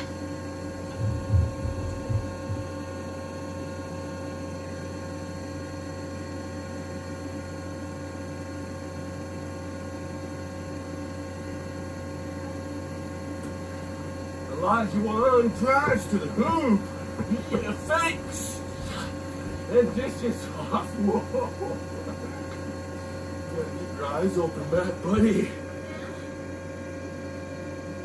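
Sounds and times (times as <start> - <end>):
electrical mains hum: 0.0 - 28.0
low thuds: 0.9 - 2.7.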